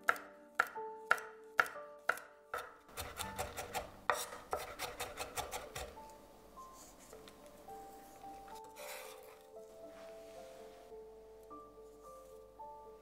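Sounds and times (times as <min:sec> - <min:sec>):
knife chopping on cutting board: 0:00.0 - 0:06.0.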